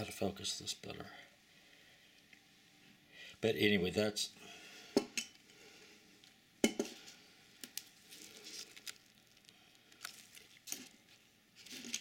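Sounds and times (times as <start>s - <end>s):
rustling: 7.7s - 12.0s.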